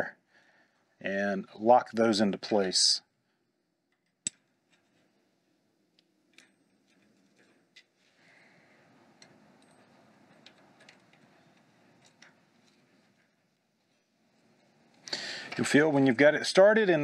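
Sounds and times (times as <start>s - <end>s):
small metal parts clicking: 5.9s - 8.0s, 9.2s - 13.3s.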